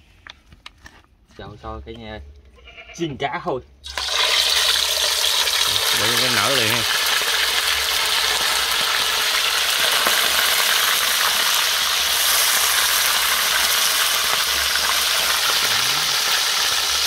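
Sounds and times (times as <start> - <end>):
fish sizzling in hot oil: 3.8 - 17.0.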